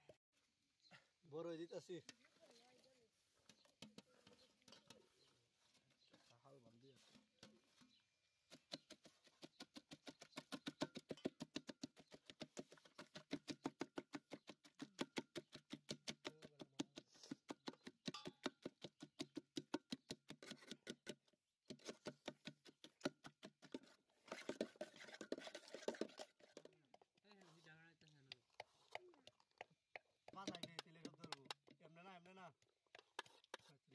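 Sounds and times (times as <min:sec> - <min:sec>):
masher pounding fruit pulp in pot: 0:08.5 - 0:33.9.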